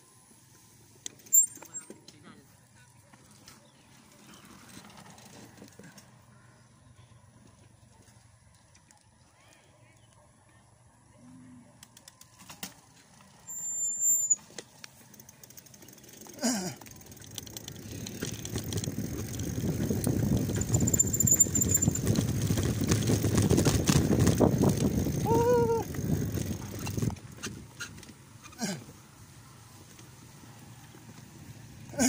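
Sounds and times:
bike tyre noise on dirt: 0.3 - 9.2, 12.0 - 32.0
short high squeal: 1.3 - 1.9, 13.5 - 14.4
wind on microphone: 18.6 - 27.6.

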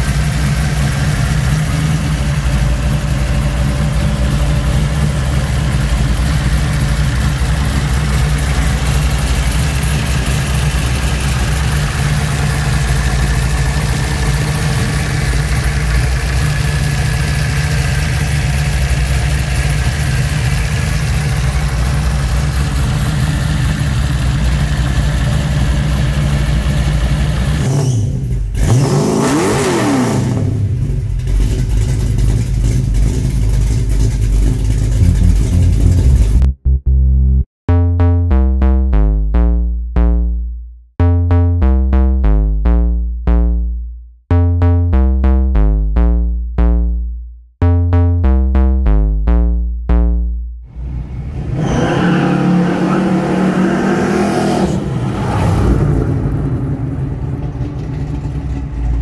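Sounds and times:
car engine idling: 0.0 - 28.6, 30.4 - 36.7, 50.7 - 53.6, 54.6 - 59.0
engine revving: 0.0 - 36.6, 50.7 - 59.0.

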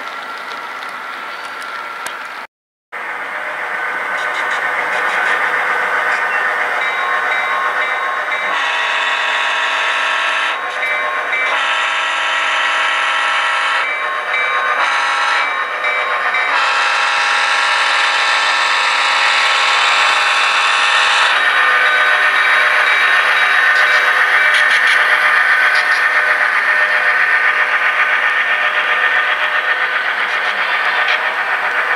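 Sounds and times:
model diesel locomotive engine: 0.0 - 31.9
locomotive horn blasts: 8.5 - 10.6, 11.4 - 13.9, 14.8 - 15.5, 16.5 - 21.4.

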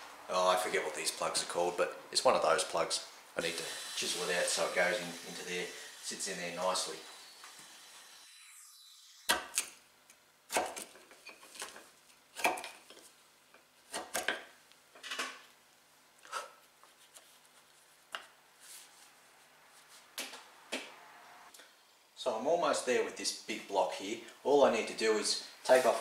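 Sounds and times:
chisel chopping wood: 9.3 - 9.7, 10.5 - 11.0, 12.4 - 12.8, 13.9 - 14.5.

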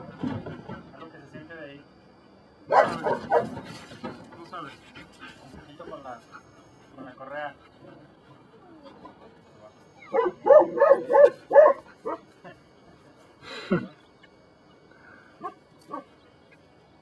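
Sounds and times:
dog barking: 2.7 - 3.6, 10.0 - 12.2, 15.4 - 16.1
dog yelping: 2.7 - 3.6, 9.9 - 12.2.

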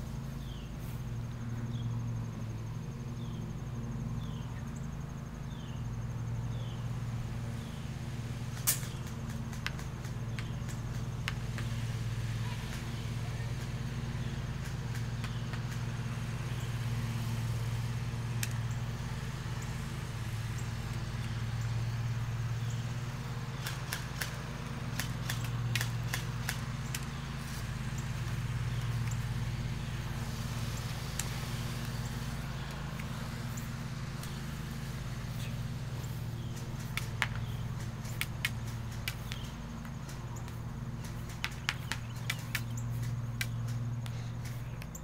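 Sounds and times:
low motor hum: 0.0 - 45.0
sharp clicks: 8.6 - 11.7, 18.4 - 18.6, 23.6 - 27.2, 31.1 - 32.0, 36.3 - 45.0.

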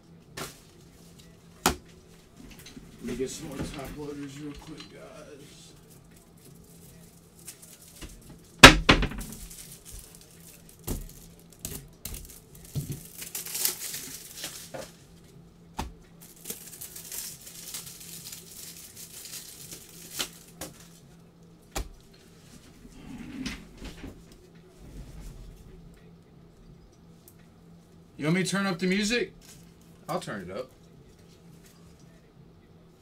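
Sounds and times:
faint steady hum: 0.0 - 33.0
foil wrappers crinkling and tearing: 5.7 - 15.2, 16.2 - 21.1, 29.4 - 30.0.

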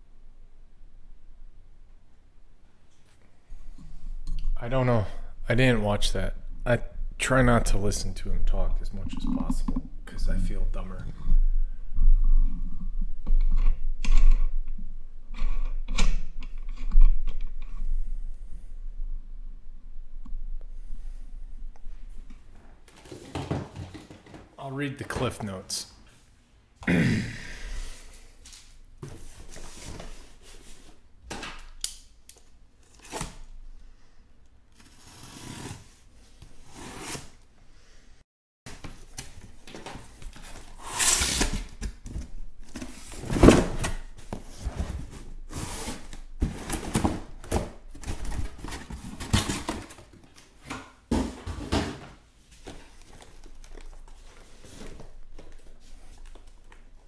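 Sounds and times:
cardboard rustling and tearing: 38.8 - 50.2.

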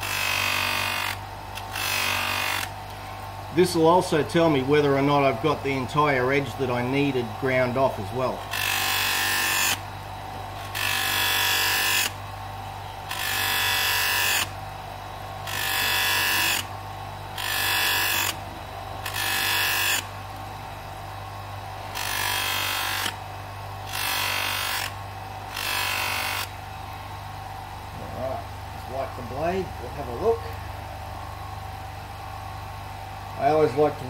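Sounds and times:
bench grinder motor humming: 0.0 - 34.0
knife blade hissing on buffing wheel: 15.4 - 16.7, 17.4 - 18.4, 19.0 - 20.1.

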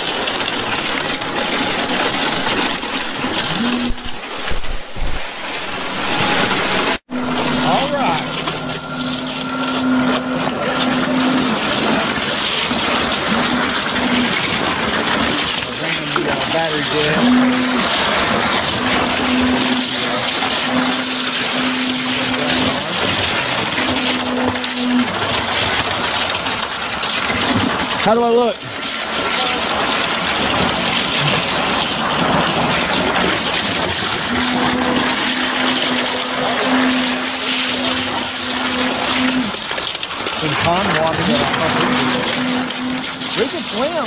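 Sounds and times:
rising whine: 0.0 - 25.4
concrete rushing out of hose: 0.0 - 26.2
low hum: 0.0 - 28.0.

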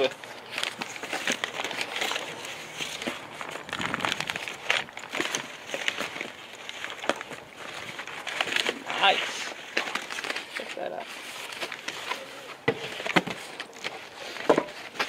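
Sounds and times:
packing paper crinkling: 0.0 - 15.0.

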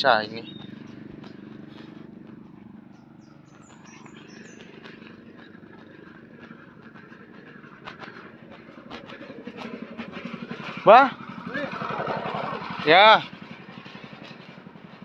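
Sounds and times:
low engine hum: 0.0 - 15.0
high bird chirps: 0.4 - 0.9, 2.8 - 5.7.

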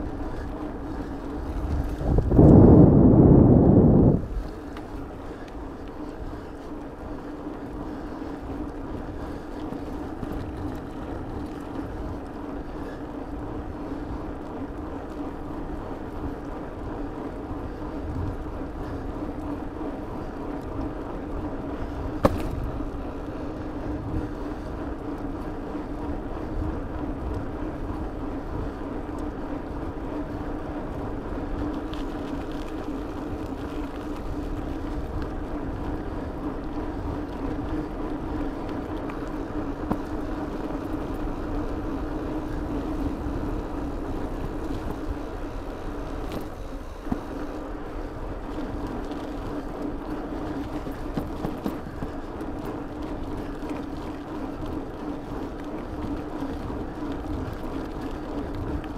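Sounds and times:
wind on microphone: 0.0 - 5.4
bicycle tyre hum: 0.0 - 58.9.

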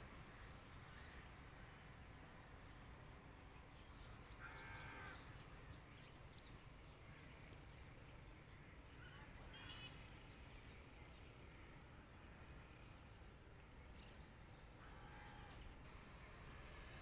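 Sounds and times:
faint low train rumble: 0.0 - 17.0
crow cawing: 4.4 - 5.1.

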